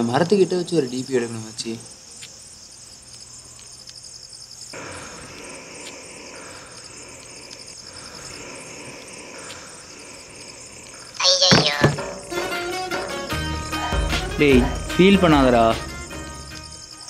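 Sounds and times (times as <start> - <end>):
crickets chirping: 0.0 - 17.0
broad rushing hiss: 4.7 - 11.3.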